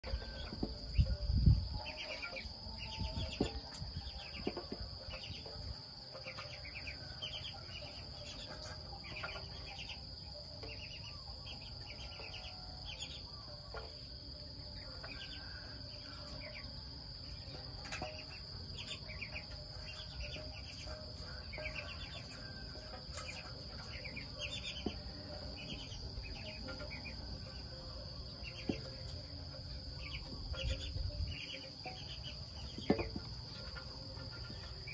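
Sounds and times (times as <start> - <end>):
insect chirps: 0.0 - 34.9
insects droning: 0.0 - 34.9.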